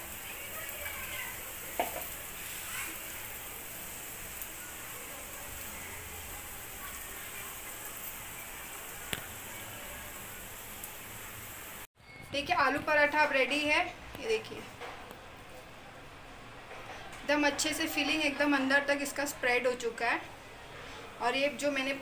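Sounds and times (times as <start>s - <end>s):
flatbread sizzling on griddle: 0.0s - 11.9s.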